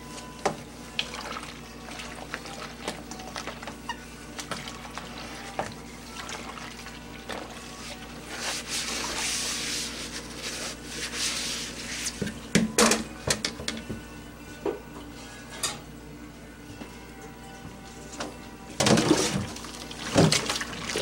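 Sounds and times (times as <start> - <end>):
sponge scrubbing bowl in water: 0.9 - 12.3.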